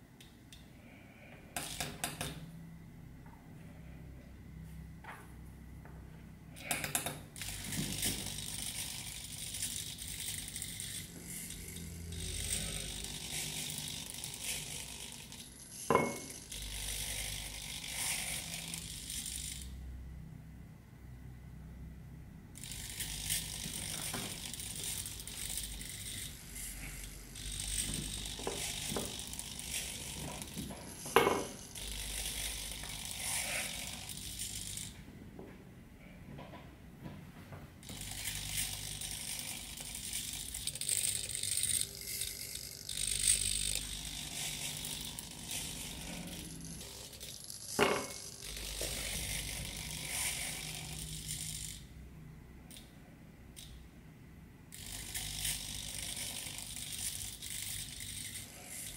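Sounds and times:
servo motors whirring and buzzing: 0:06.6 - 0:19.7, 0:22.6 - 0:35.0, 0:37.8 - 0:51.9, 0:54.7 - 0:58.9.

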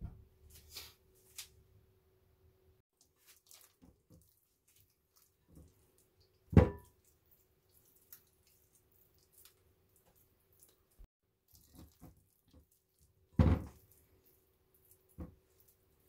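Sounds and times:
small taps and drips: 0:03.0 - 0:14.2.

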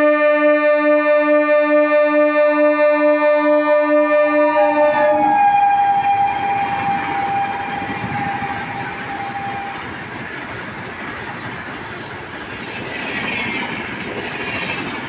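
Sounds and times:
train horn blaring: 0:00.0 - 0:10.1
train wheels rushing on rail: 0:03.5 - 0:15.0.

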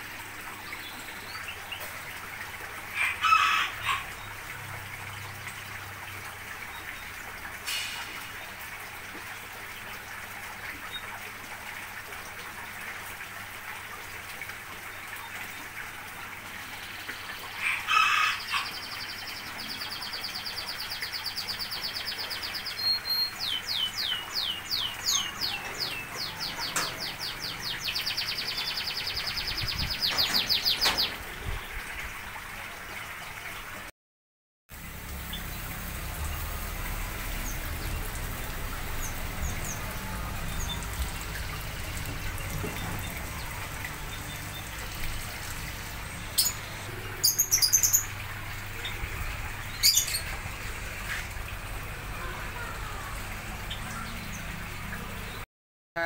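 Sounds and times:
rooster crowing: 0:03.0 - 0:04.1, 0:17.7 - 0:18.7.

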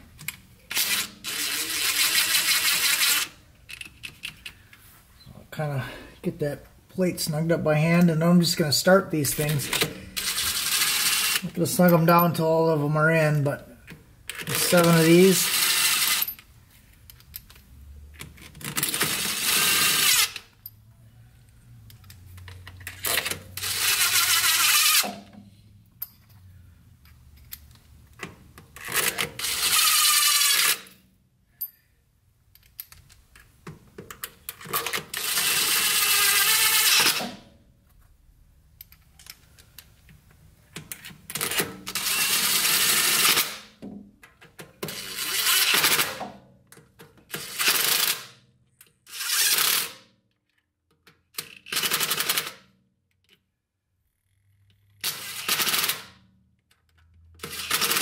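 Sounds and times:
impact driver running in bolts: 0:14.3 - 0:16.4, 0:22.8 - 0:25.3, 0:28.8 - 0:30.9, 0:34.5 - 0:37.4, 0:41.3 - 0:43.7, 0:44.8 - 0:46.2, 0:57.4 - 0:58.0.

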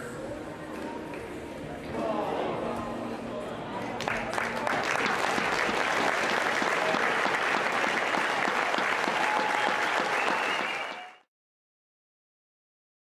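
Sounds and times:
crowd applauding: 0:04.0 - 0:11.3.

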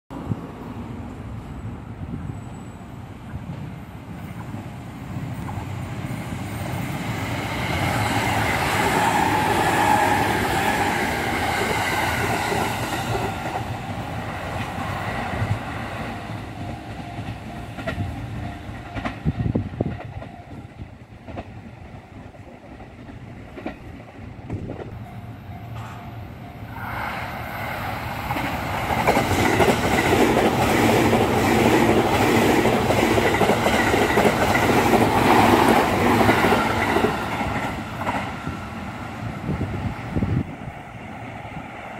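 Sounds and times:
train wheel noise: 0:00.2 - 0:41.9
train wheels clattering over rail joints: 0:28.3 - 0:38.4.

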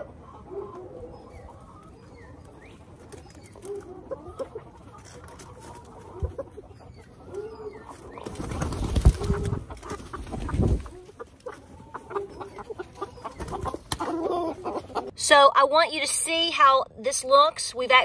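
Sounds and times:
hens clucking: 0:00.0 - 0:15.2
birds rustling and thumping: 0:01.4 - 0:15.1.

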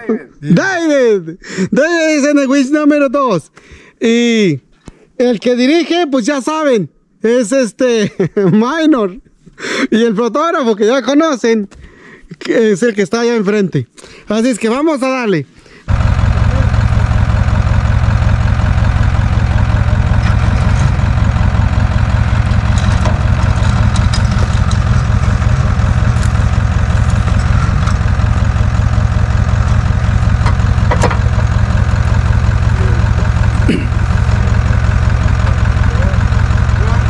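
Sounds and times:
vehicle engine idling: 0:15.8 - 0:37.0.

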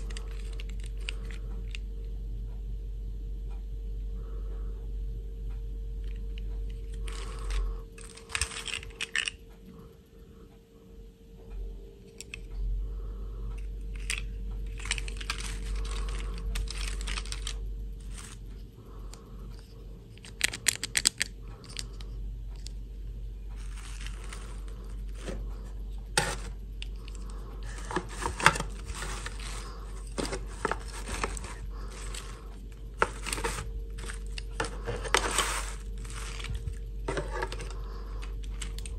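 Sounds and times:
plastic dolls rustling and clicking: 0:00.0 - 0:01.9, 0:06.0 - 0:09.4, 0:13.6 - 0:22.8, 0:23.6 - 0:38.9
faint steady hum: 0:00.0 - 0:38.9.

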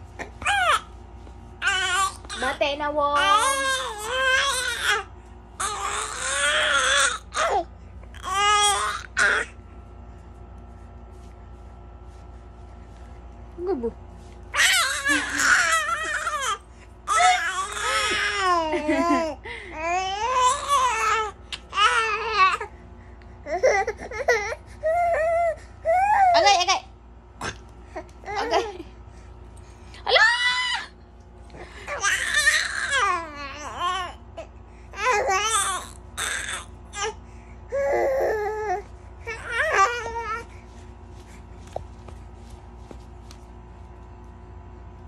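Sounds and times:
baby squealing and babbling: 0:14.6 - 0:18.4.

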